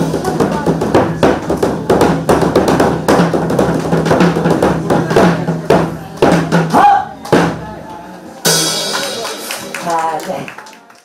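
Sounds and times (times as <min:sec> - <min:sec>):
barrel drums struck with sticks: 0:00.0 - 0:07.6.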